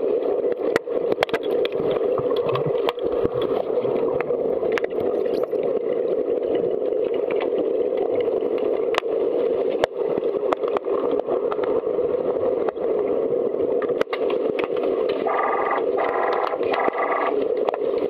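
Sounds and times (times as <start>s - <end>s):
muffled underwater rushing: 0.0s - 18.0s.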